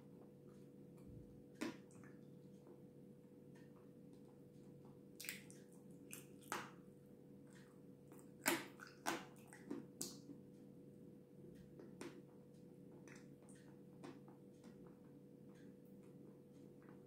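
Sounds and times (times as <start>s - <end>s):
faint steady hum: 0.0s - 17.0s
wet chewing and smacking: 5.2s - 6.8s, 7.5s - 10.4s.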